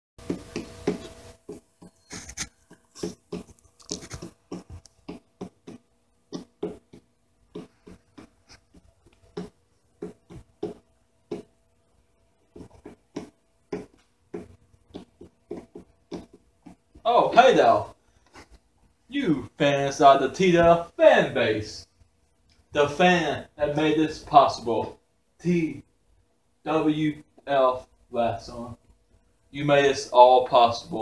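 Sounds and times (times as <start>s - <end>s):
light taps and scratchy knocks: 0.2s - 11.6s, 12.5s - 17.0s
faint steady hum: 0.2s - 31.0s.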